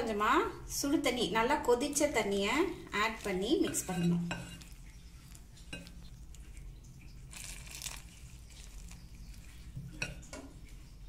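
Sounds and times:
spatula scraping flour in bowl: 0:03.0 - 0:06.6.

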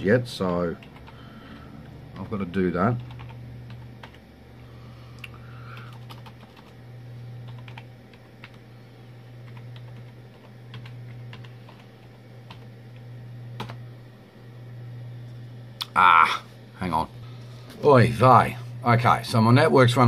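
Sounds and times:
low hum: 0:00.0 - 0:20.0
keyboard keys clicking: 0:05.8 - 0:06.7.

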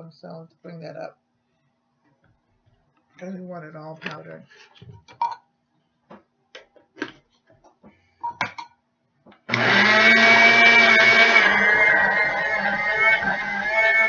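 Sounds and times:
electric blender grinding sugar: 0:09.5 - 0:14.0.

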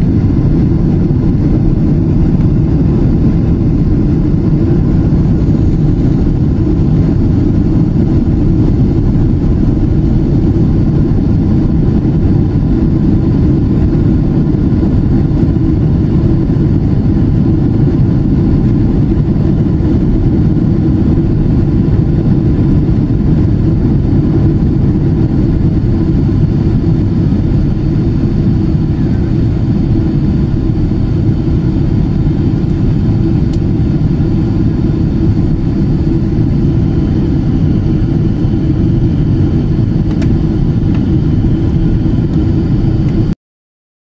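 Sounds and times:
jet engine cabin rumble: 0:00.0 - 0:43.4.

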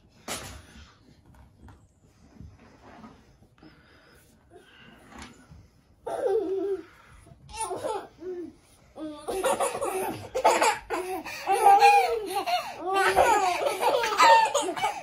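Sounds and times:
baby laughing: 0:06.0 - 0:06.9, 0:07.5 - 0:15.0.

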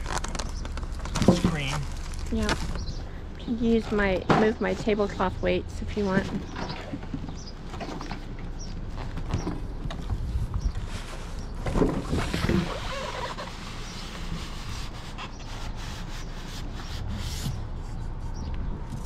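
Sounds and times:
cardboard and styrofoam rustling: 0:00.0 - 0:02.9, 0:10.8 - 0:17.6.

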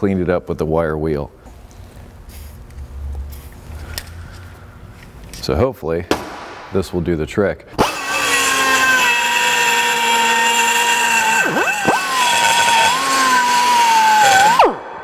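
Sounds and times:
die grinder whining: 0:07.8 - 0:14.9.

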